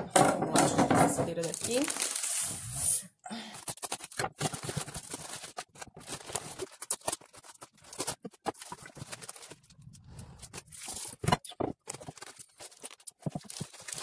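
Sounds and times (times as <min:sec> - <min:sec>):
knife tearing plastic wrapping: 0:01.4 - 0:02.8, 0:03.6 - 0:09.6, 0:10.5 - 0:14.0.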